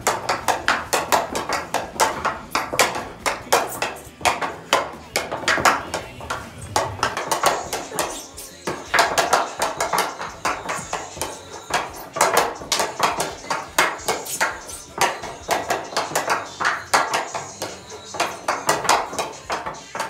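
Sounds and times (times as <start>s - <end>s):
stick tapping golf ball: 0.0s - 20.0s.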